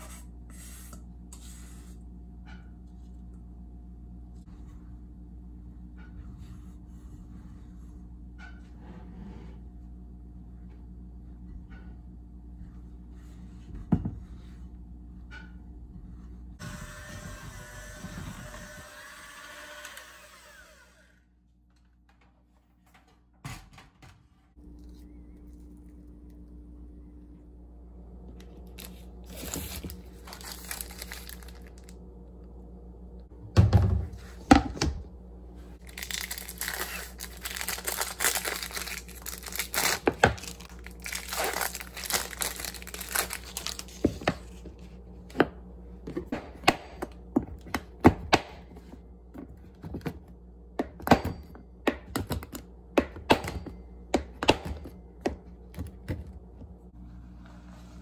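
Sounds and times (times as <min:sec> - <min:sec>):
packaging crinkling and rustling: 0:28.5 - 0:32.0, 0:35.8 - 0:44.7.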